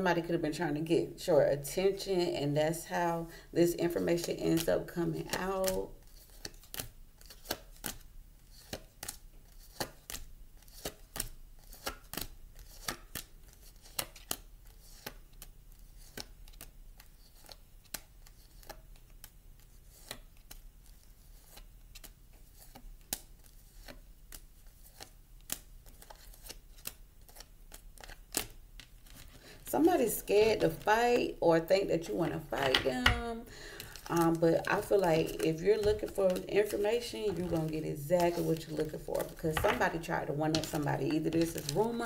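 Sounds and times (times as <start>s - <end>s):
cards shuffling clicks: 4.2s - 31.3s, 32.6s - 42.0s
low steady hum: 28.6s - 42.0s.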